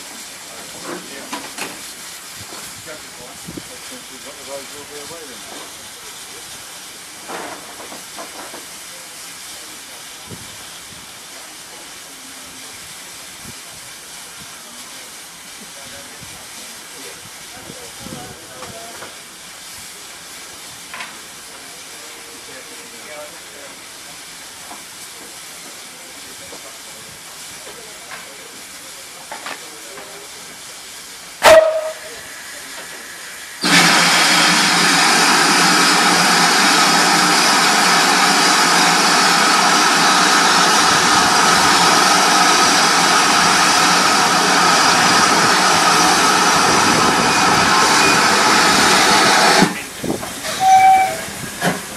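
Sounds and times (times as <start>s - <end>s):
steam hissing from locomotive: 0.0s - 51.9s
faint voices: 35.7s - 51.9s.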